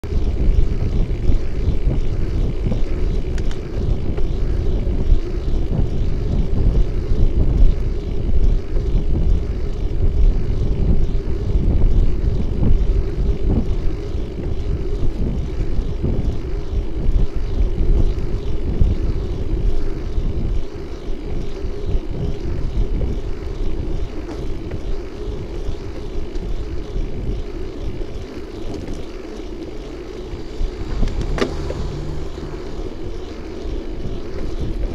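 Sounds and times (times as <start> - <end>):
road noise from bike: 0.0 - 34.9
wind buffeting microphone: 0.0 - 34.9.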